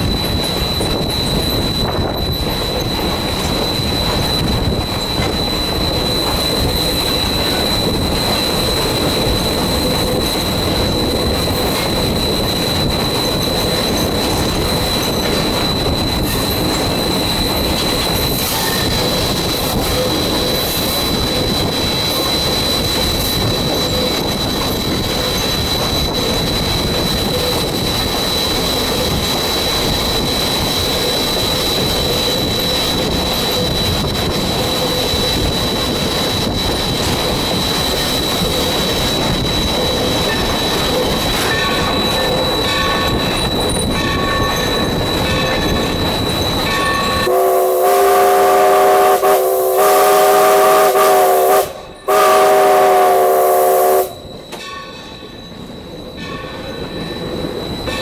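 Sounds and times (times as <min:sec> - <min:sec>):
train wheels rumbling on rails: 0:00.0 - 0:58.0
locomotive chime whistle: 0:37.8 - 0:58.0.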